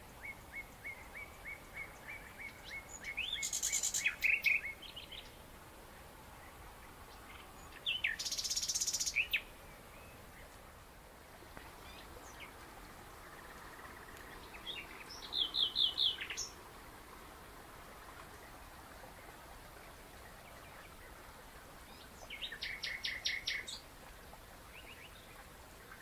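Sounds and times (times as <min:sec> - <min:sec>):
steady outdoor hiss: 0:00.0 - 0:26.0
small birds chirping: 0:00.2 - 0:05.4, 0:06.4 - 0:10.6, 0:13.2 - 0:16.6, 0:21.8 - 0:23.8.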